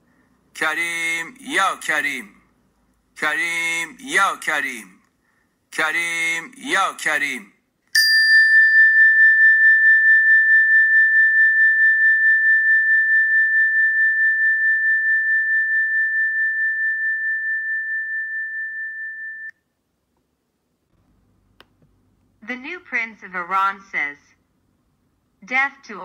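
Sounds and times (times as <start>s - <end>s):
high pure ringing tone: 8.0s - 19.7s.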